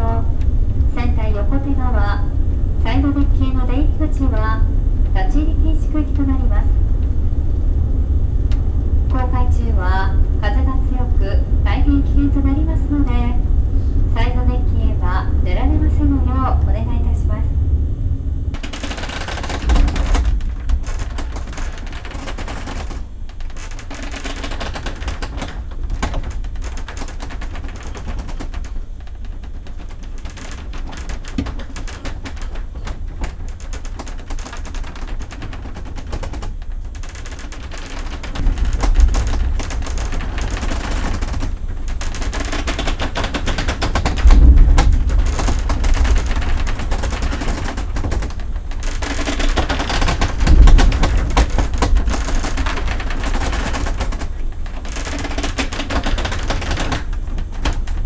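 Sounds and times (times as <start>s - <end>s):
ship engine low rumble: 0.0s - 58.0s
cabin fittings rattling: 18.5s - 58.0s.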